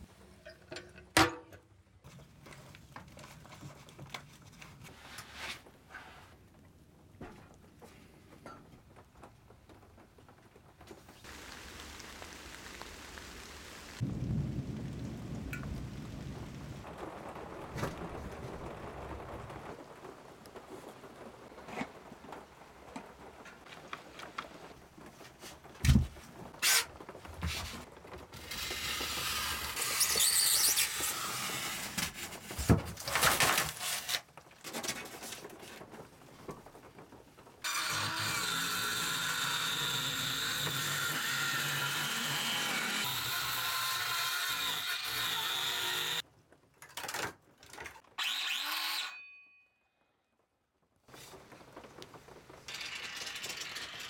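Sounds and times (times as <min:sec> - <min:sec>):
rain pattering on leaves: 0:08.8 - 0:32.3, 0:33.1 - 0:37.7, 0:50.8 - 0:54.0
circular saw cutting: 0:28.4 - 0:32.1, 0:37.6 - 0:46.2, 0:48.2 - 0:49.3.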